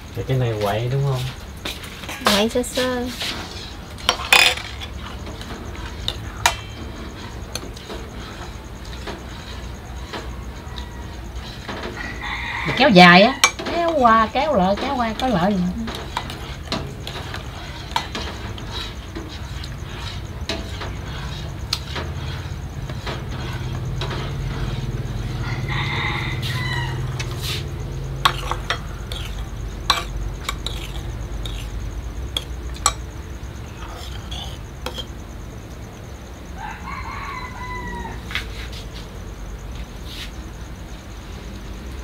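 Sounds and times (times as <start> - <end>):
rooster crowing: 9.4 - 14.2, 24.2 - 28.1, 36.4 - 38.7
metal spoons clinking on bowls: 28.2 - 31.6, 32.4 - 33.0.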